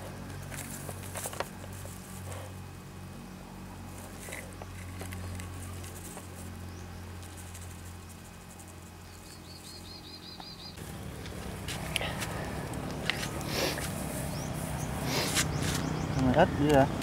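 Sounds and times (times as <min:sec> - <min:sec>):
steady low hum: 0:00.0 - 0:17.0
straw mulch rustling: 0:03.7 - 0:09.9, 0:10.8 - 0:16.0.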